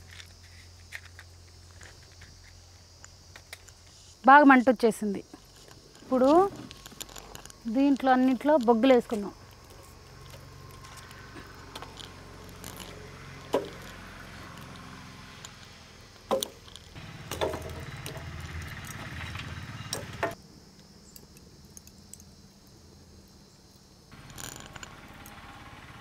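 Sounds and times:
charcoal clattering into metal brazier: 16.3s - 19.4s.

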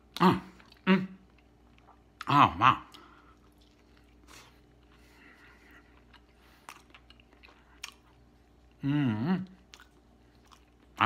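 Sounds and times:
man chewing food: 0.0s - 11.0s
man humming mmm: 8.8s - 9.6s.

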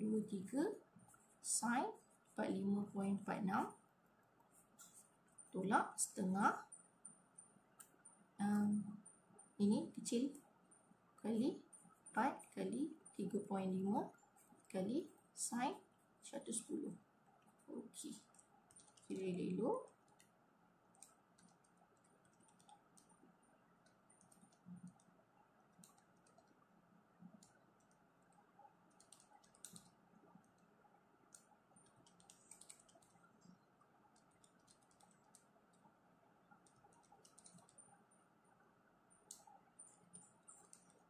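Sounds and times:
calculator keys clicking: 18.3s - 19.2s, 28.9s - 29.9s, 31.3s - 33.2s, 34.2s - 35.4s, 36.6s - 37.8s.

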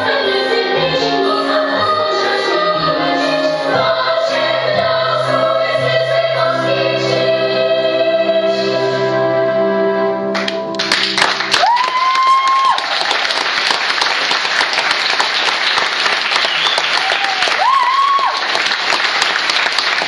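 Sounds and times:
audience applauding: 10.4s - 20.0s
high held cheer: 11.4s - 13.7s, 16.1s - 19.3s.

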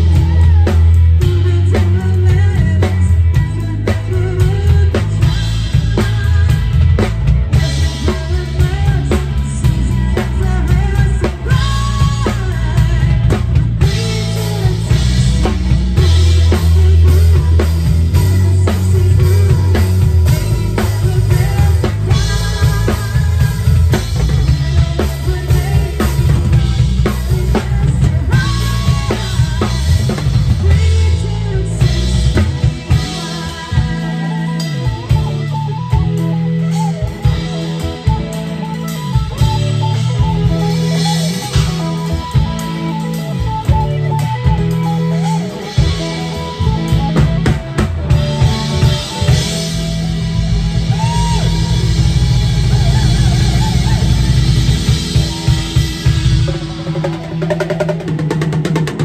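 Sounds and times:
woman singing: 0.0s - 38.7s
drum kit: 0.0s - 59.0s
rock band playing: 0.0s - 59.0s.

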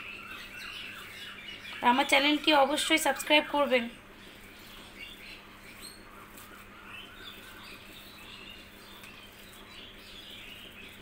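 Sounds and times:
low steady hum: 0.0s - 11.0s
small birds chirping: 0.0s - 11.0s.

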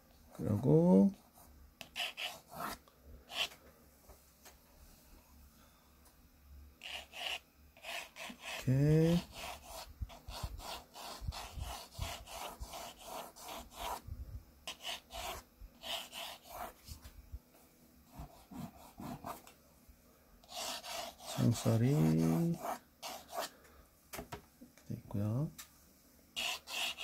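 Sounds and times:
pencil scratching on paper: 1.3s - 3.5s, 6.8s - 14.0s, 14.7s - 17.0s, 18.1s - 19.5s, 20.4s - 23.5s, 26.4s - 27.0s.

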